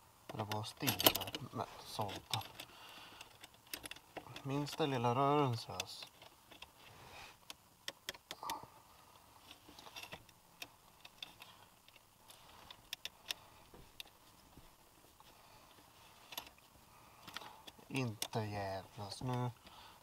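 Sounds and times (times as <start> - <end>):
small metal parts clicking: 0.4 - 1.4, 2.0 - 4.9.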